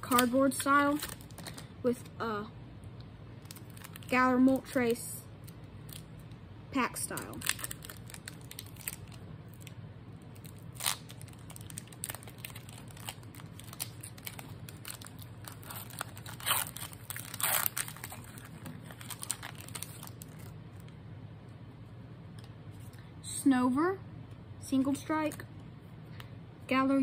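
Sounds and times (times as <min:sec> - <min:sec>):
foil wrapper tearing and crinkling: 0:00.0 - 0:01.7, 0:03.4 - 0:04.2, 0:07.0 - 0:09.7, 0:10.3 - 0:20.5
steady low hum: 0:00.0 - 0:27.0.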